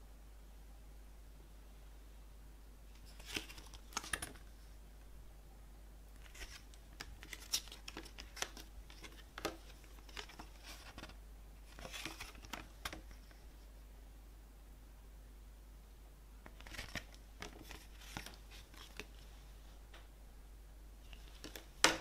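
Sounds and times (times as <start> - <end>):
glossy paper pages rustling: 3.0 - 4.6, 6.2 - 13.5, 16.4 - 19.4, 21.1 - 22.0.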